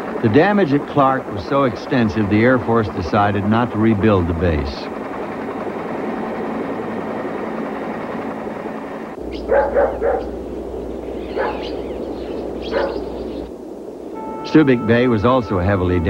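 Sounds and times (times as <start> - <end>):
aircraft rushing noise: 0.0 - 16.0
low hum: 0.0 - 16.0
dog barking: 9.4 - 10.4, 11.3 - 11.8, 12.6 - 13.2.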